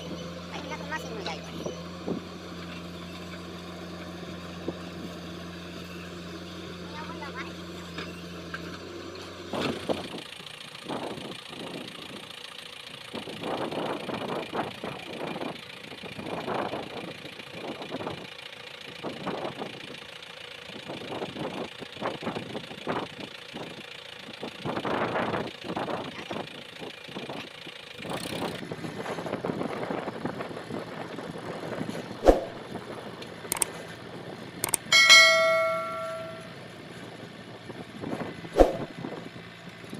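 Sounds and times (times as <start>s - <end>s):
tractor diesel engine running: 0.0s - 39.9s
sharp clicks: 33.5s - 33.7s, 34.6s - 34.9s
bright bell chime: 34.8s - 36.5s
wind on microphone: 38.6s - 38.9s.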